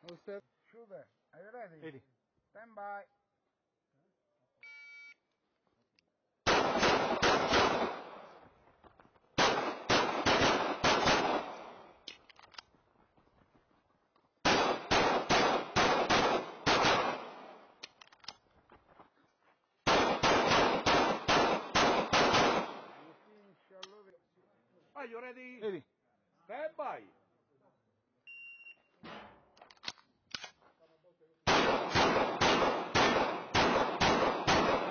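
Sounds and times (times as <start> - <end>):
pistol shots: 6.5 - 8.4, 9.4 - 12.1, 14.4 - 17.8, 19.8 - 23.0, 31.5 - 34.9.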